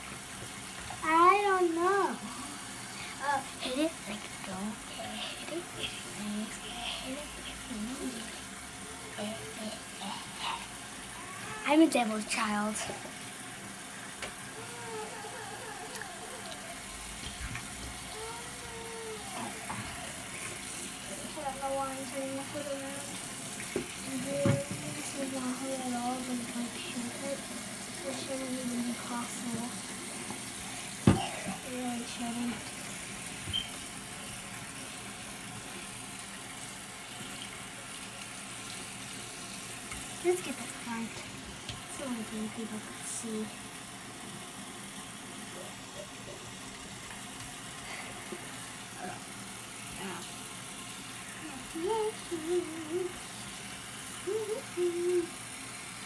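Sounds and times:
tap water running: 0.0 - 56.0.

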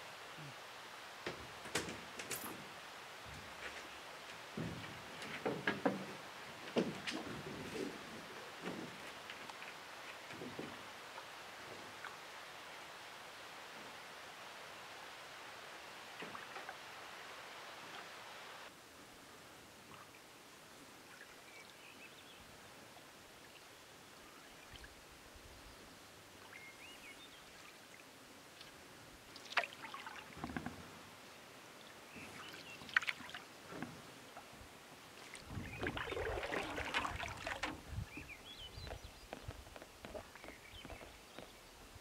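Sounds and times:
paddle stroking through water: 1.4 - 12.2, 32.1 - 41.0
paddle knocking against canoe hull: 4.5 - 9.3, 35.5 - 38.3
mug splashing in water: 35.8 - 37.7.

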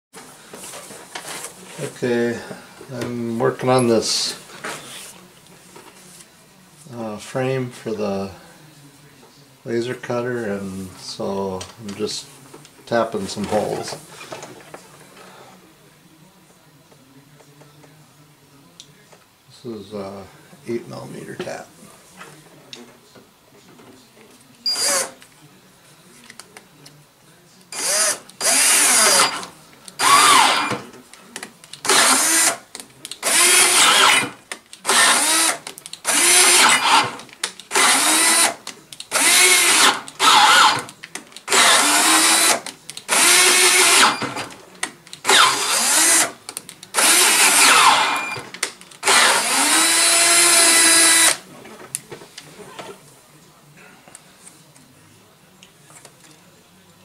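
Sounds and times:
cordless drill motor whine: 24.7 - 25.1, 27.8 - 30.8, 31.9 - 32.6, 33.2 - 40.9, 41.5 - 44.4, 45.3 - 46.3, 47.0 - 48.4, 49.0 - 51.4.

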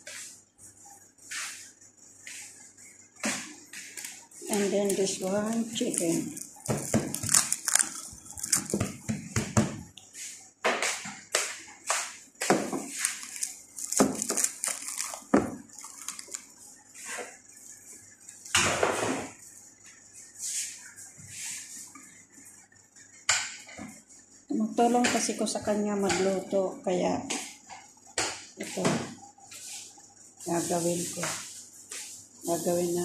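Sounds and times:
crinkling rustles: 3.9 - 9.1, 12.8 - 16.6.

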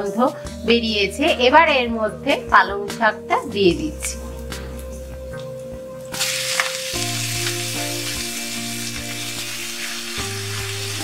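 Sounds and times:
spinach sizzling in hot oil: 6.2 - 11.0.

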